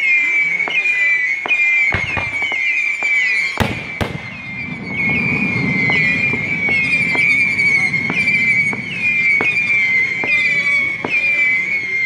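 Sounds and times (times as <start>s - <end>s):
whistling rockets: 0.0s - 12.0s
firework cracks: 0.6s - 11.8s
firework pops: 1.4s - 4.4s.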